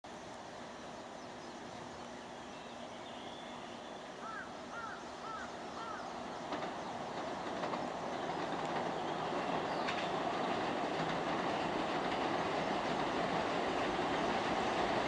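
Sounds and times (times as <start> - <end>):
electric train running noise: 5.2 - 15.0
rail-joint clicks: 6.4 - 15.0.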